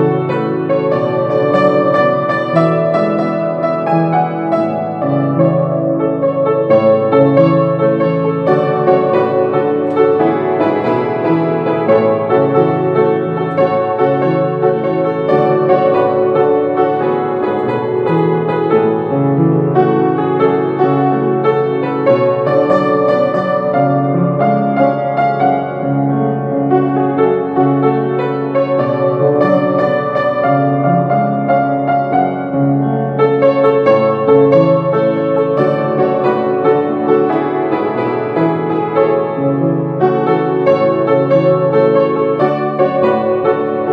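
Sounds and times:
piano music: 0:00.0 - 0:43.9.

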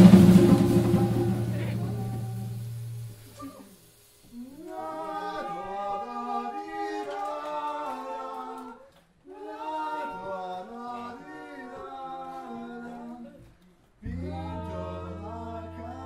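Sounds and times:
group singing a cappella: 0:04.3 - 0:13.4, 0:14.0 - 0:16.0.

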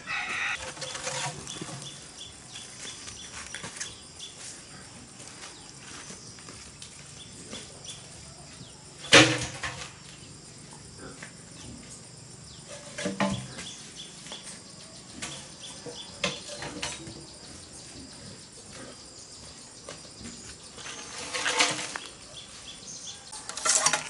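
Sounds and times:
bamboo poles clattering: 0:00.1 - 0:04.5, 0:09.0 - 0:10.2, 0:12.6 - 0:17.3, 0:19.8 - 0:22.5, 0:23.3 - 0:24.0.

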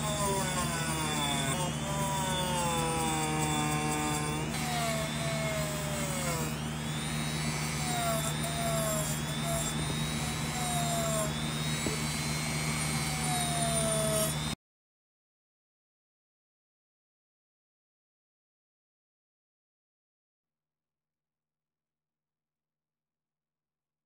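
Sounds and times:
rotary tool wire brush whining: 0:00.0 - 0:14.6.

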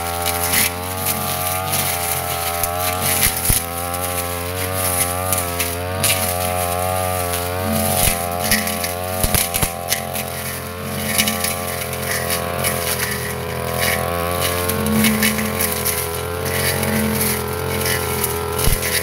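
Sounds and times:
brush cutter engine cutting grass: 0:00.0 - 0:19.0
debris ticking on blade: 0:07.8 - 0:19.0.

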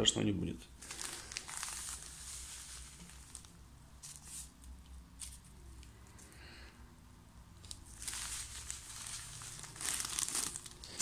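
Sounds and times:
plastic bag crinkling: 0:00.8 - 0:04.5, 0:07.6 - 0:11.0.

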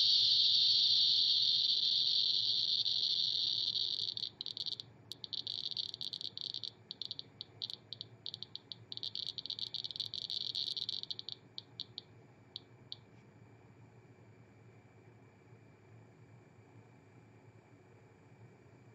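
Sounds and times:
geiger counter beeping: 0:00.0 - 0:12.1.

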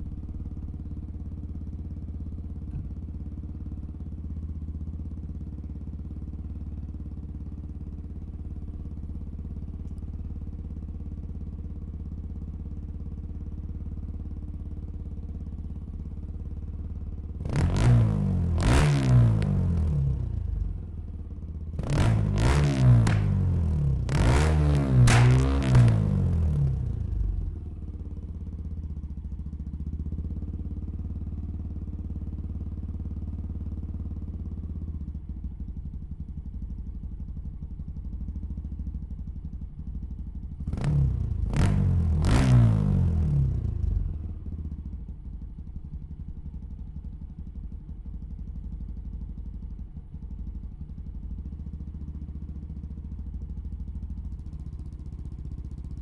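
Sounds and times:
motorcycle engine idling: 0:00.0 - 0:56.0
engine throttle blips: 0:21.8 - 0:26.4.

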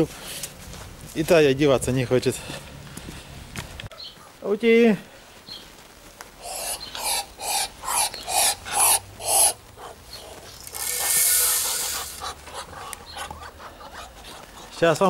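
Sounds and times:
ducks hissing: 0:06.4 - 0:15.0.

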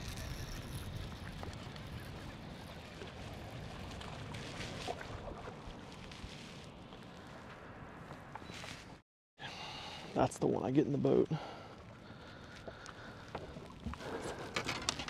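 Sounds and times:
choppy water: 0:00.0 - 0:07.0, 0:11.2 - 0:15.0.

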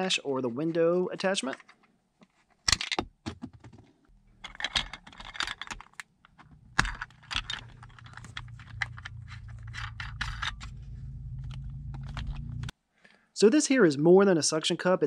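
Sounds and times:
plastic phone mount clicks and rattles: 0:04.4 - 0:10.8
low steady hum: 0:06.3 - 0:12.7.

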